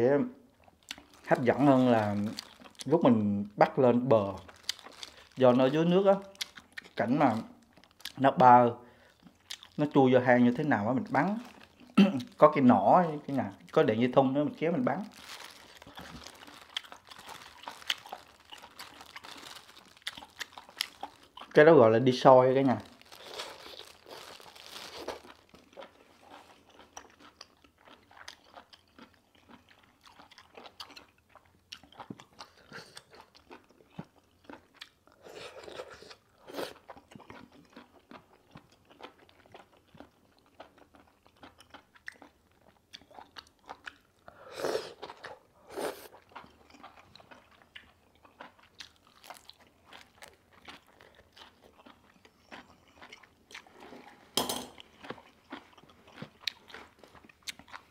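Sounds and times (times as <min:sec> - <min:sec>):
close-up chewing with wet crunches: 0:00.6 - 0:03.0, 0:04.2 - 0:08.2, 0:09.0 - 0:10.0, 0:10.6 - 0:14.0, 0:14.9 - 0:21.6, 0:22.9 - 0:44.2, 0:45.0 - 0:57.9.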